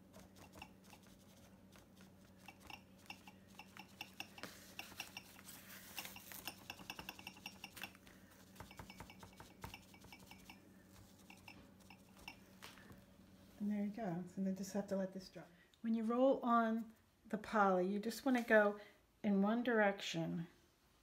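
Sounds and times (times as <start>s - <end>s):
sponge dabbing on board: 0.0s - 12.3s.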